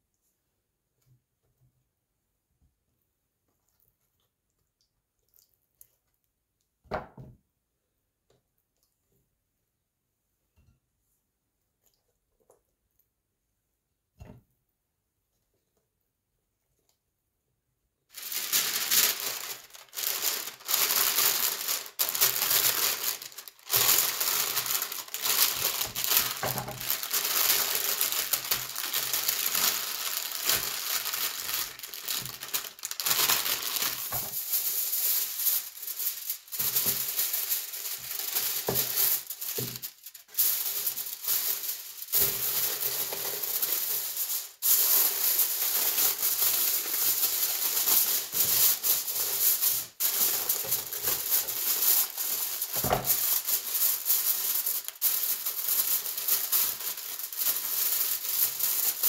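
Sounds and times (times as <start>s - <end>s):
paper and foil crinkling: 18.1s - 59.0s.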